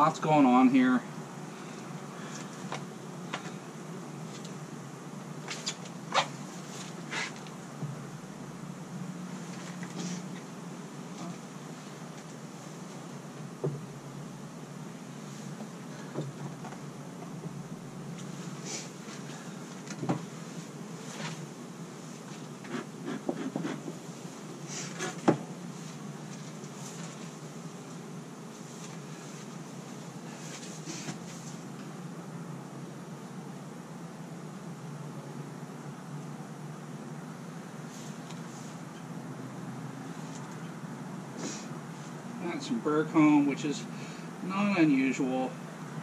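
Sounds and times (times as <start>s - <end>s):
steady low hum: 0.0s - 46.0s
bee smoker bellows puffs: 1.2s - 32.1s, 40.1s - 42.3s
wooden hive boxes knocking: 13.3s - 13.9s.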